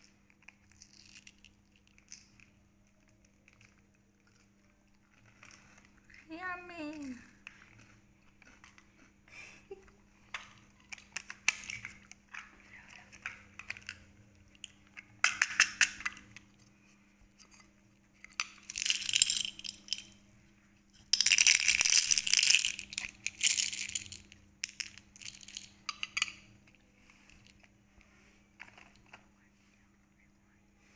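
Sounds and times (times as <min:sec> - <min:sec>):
candies rattling in plastic container: 0:18.3 - 0:20.2, 0:21.0 - 0:26.4.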